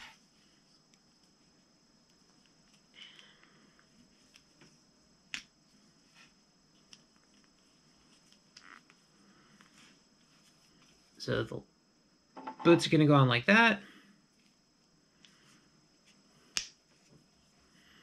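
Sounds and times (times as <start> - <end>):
soft plastic rustle: 0.0 - 4.9, 5.6 - 11.2.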